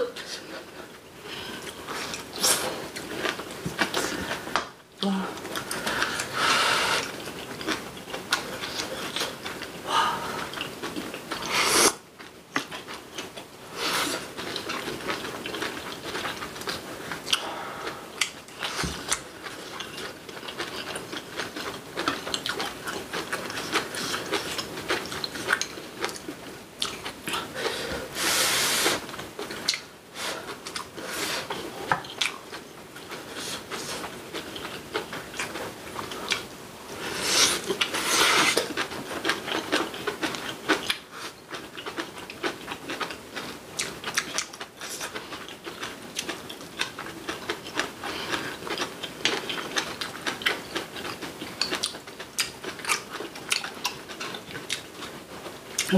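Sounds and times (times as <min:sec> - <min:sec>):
wet chewing: 0:05.4 - 0:27.7, 0:29.1 - 0:55.9.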